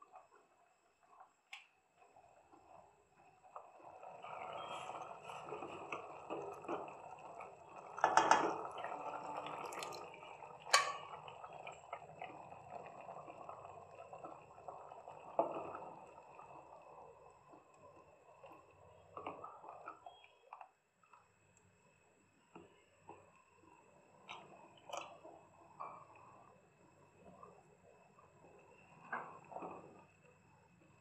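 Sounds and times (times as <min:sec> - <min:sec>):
thick food plopping and sloshing: 0:08.6 - 0:11.2
wet splash: 0:09.4 - 0:10.1.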